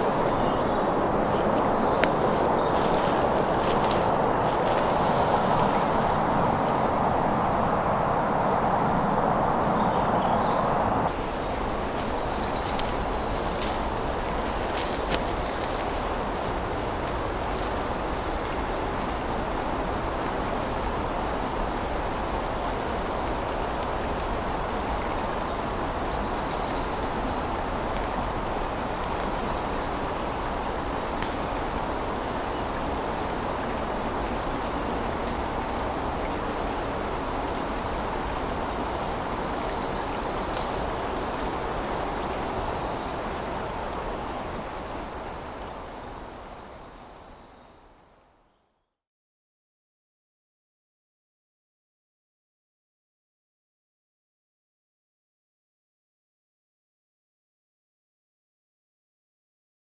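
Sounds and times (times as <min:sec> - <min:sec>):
small birds chirping: 0:00.0 - 0:08.7, 0:09.8 - 0:32.9, 0:33.6 - 0:48.8
stream running: 0:00.0 - 0:48.4.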